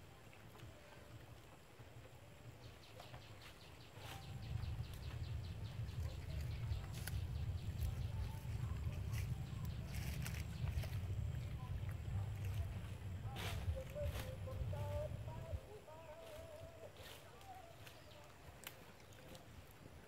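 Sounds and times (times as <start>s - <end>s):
leaves and stalks rustling: 0.0s - 20.0s
low rumble: 4.2s - 15.7s
stalks snapping: 18.6s - 19.2s.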